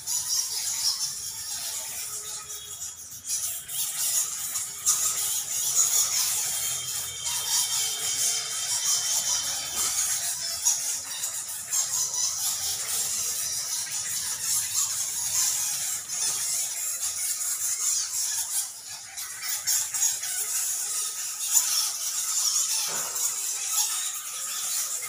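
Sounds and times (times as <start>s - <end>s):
bats squeaking: 0.0s - 25.0s.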